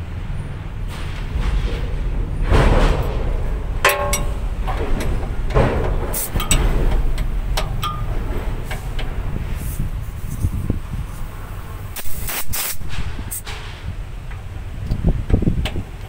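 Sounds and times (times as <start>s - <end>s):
low rumble: 0.0s - 12.0s
metal clinks and taps: 3.8s - 9.1s.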